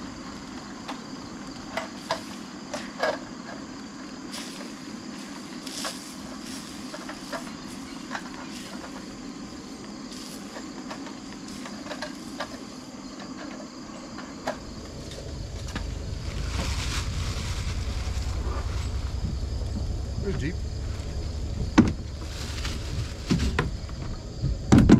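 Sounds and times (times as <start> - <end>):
gas stove hum: 14.4 - 24.4
low rumble: 14.5 - 24.7.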